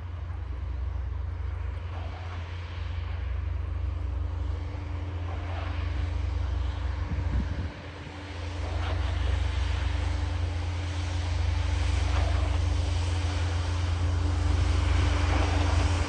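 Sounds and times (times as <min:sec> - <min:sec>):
distant engine droning: 0:00.0 - 0:16.0
wind buffeting microphone: 0:07.0 - 0:08.3.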